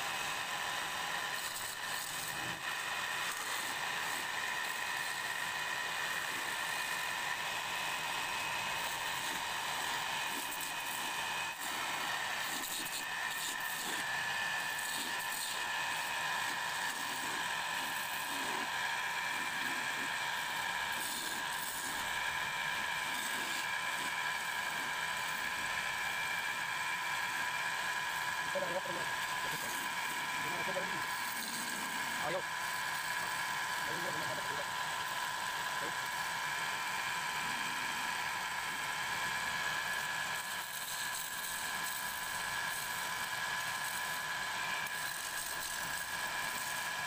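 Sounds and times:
turning tool cutting wood: 0:00.0 - 0:47.0
wood lathe whine: 0:00.0 - 0:47.0.

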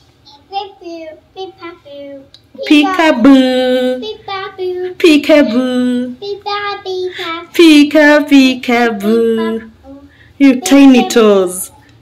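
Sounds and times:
young child singing: 0:00.2 - 0:03.2, 0:04.0 - 0:05.0, 0:06.1 - 0:07.5.

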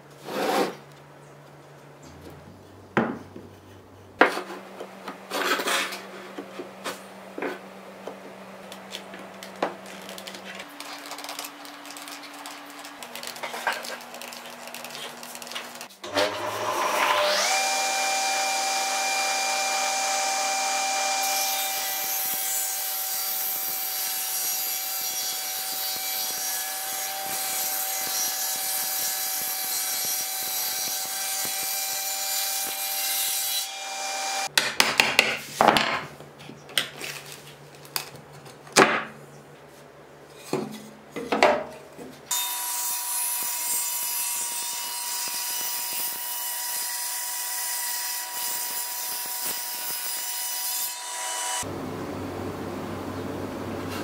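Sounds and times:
knocks and scrapes on a board: 0:00.2 - 0:00.8, 0:03.0 - 0:07.6, 0:40.4 - 0:42.2
table saw cutting wood: 0:04.2 - 0:07.6, 0:10.8 - 0:34.5, 0:42.3 - 0:51.7.

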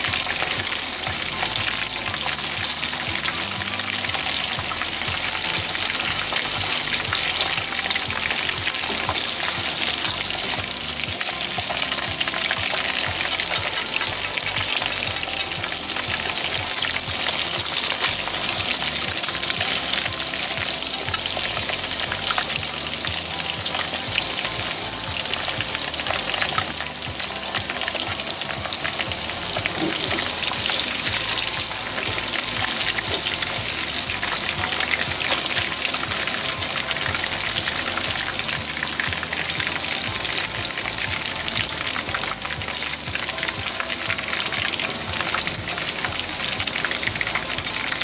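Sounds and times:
deep-frying sizzle with crackles: 0:00.0 - 0:48.0.

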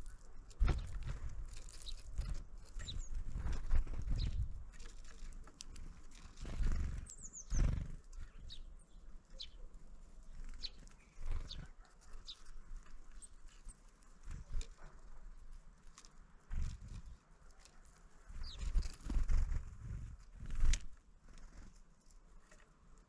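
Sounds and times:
small birds chirping: 0:00.0 - 0:23.0
low thuds and rustles: 0:00.6 - 0:01.5.

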